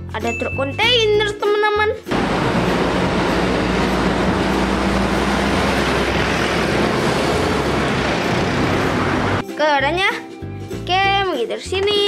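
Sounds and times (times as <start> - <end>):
trucks driving past: 2.1 - 9.4.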